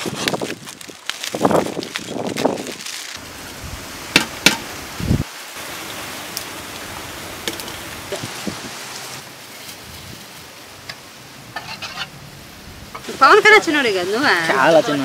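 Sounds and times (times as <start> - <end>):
foil packet rustling: 0.0 - 3.2
steady hiss: 3.1 - 15.0.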